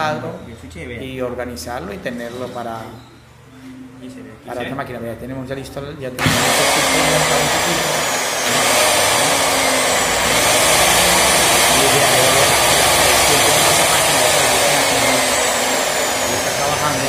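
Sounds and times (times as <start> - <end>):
angle grinder motor whining: 6.2 - 17.0.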